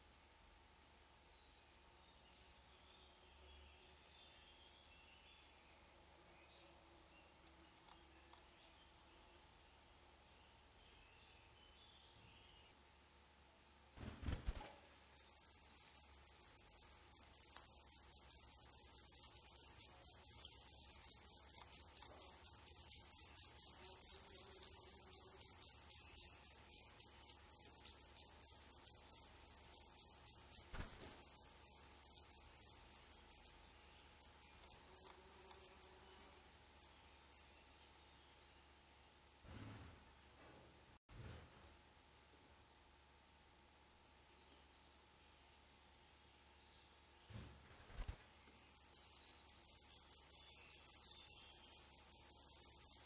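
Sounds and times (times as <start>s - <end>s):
nestlings begging with high thin calls: 14.8s - 37.7s, 48.4s - 53.0s.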